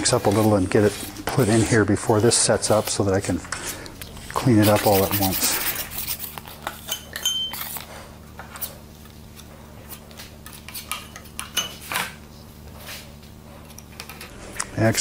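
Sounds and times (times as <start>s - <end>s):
putty knife scraping: 4.3s - 7.7s.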